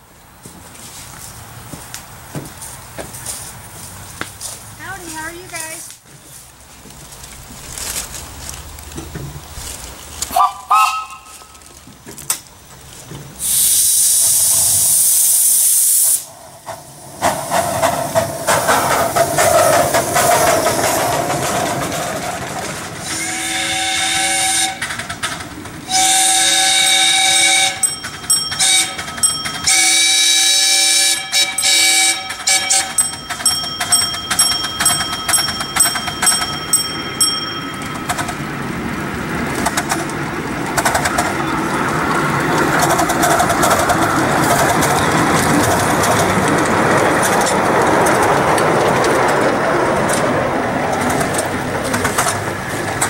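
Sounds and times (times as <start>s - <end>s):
steam whistle blasts: 10.4s - 11.4s, 13.4s - 16.3s, 23.0s - 24.9s, 25.9s - 28.0s, 28.6s - 29.0s, 29.7s - 33.0s
steam hissing: 13.2s - 22.0s.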